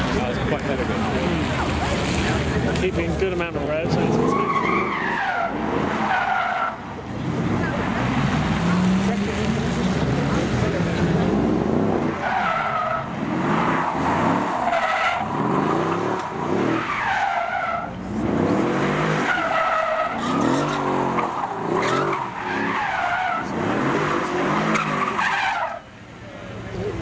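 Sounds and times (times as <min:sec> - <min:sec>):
car engine revving: 0:00.0 - 0:25.8
tyres squealing: 0:03.9 - 0:09.2, 0:12.0 - 0:26.0.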